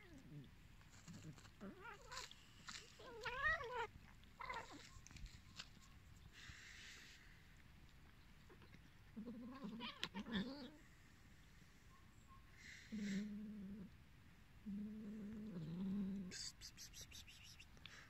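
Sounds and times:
cat yowling: 3.0 - 4.9.

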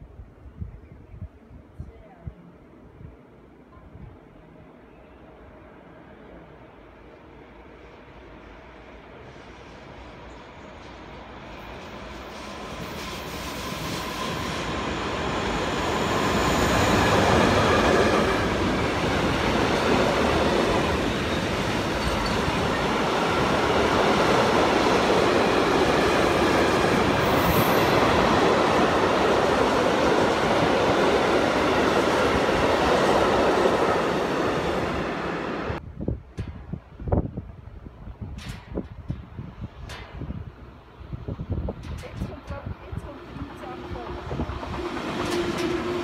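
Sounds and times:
freight train rolling past: 5.1 - 46.0
high wheel squeal: 12.3 - 17.6
wheels clattering on rail joints: 16.5 - 28.2.

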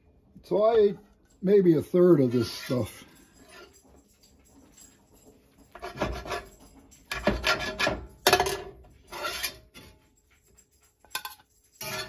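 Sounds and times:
metal spatula scraping skillet: 5.7 - 10.0, 11.2 - 12.0.

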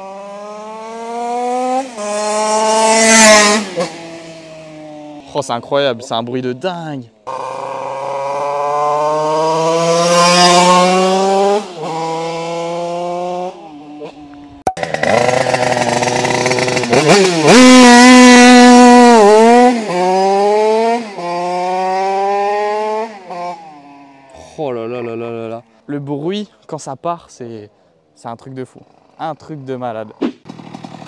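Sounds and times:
two-stroke motorcycle engine buzzing: 0.0 - 5.3, 7.2 - 24.6, 30.5 - 31.0.

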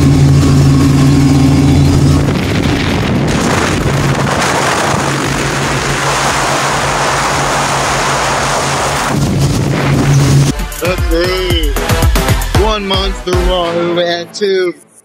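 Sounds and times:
rushing water: 0.0 - 10.6
rushing wind: 0.0 - 10.6
outboard motor running: 0.0 - 12.7.

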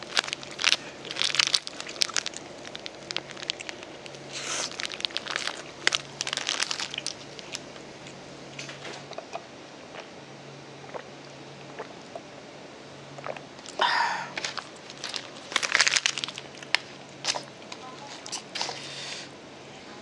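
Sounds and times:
wrapper crinkling: 0.0 - 7.8, 14.4 - 18.8
crisp food crunching: 0.0 - 10.1, 13.2 - 18.9.

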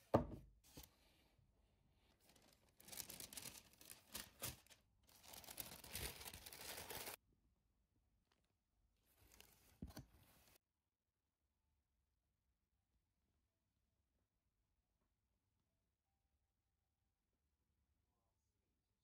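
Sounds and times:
packing paper rustling: 2.2 - 7.2.

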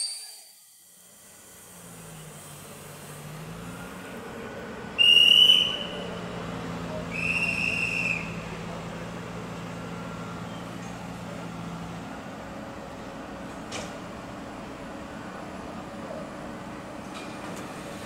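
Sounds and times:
hand whistle blasts: 0.0 - 0.6, 5.0 - 6.1, 7.1 - 8.4
electric train humming: 0.0 - 18.0.

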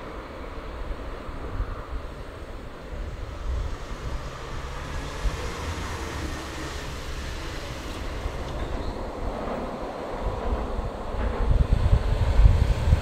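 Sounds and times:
wind rumble on microphone: 0.0 - 13.0
car passing: 0.2 - 11.0.

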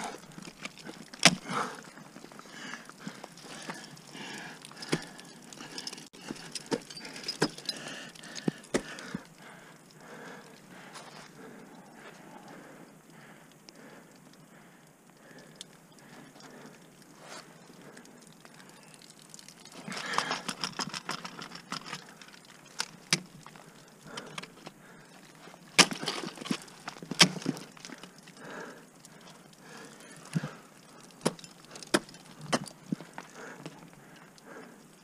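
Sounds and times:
ice tools striking ice: 25.7 - 27.8.

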